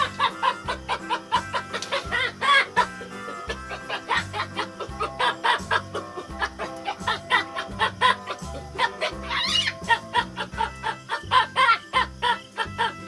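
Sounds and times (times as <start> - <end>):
background music with bass beat: 0.0 - 11.6
baboon chattering barks: 0.0 - 13.0.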